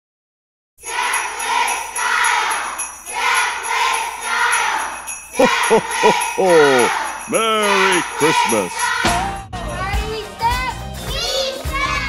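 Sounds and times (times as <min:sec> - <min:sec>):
sleigh bells jingling: 0:00.8 - 0:12.0
deep voice saying ho ho ho: 0:05.4 - 0:08.8.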